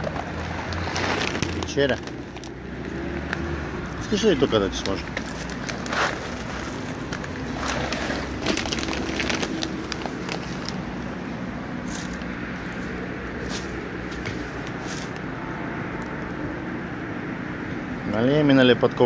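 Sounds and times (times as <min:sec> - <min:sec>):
plastic bag rustling: 0:00.0 - 0:02.6, 0:04.0 - 0:11.2, 0:11.8 - 0:15.2
distant traffic hum: 0:00.0 - 0:19.0.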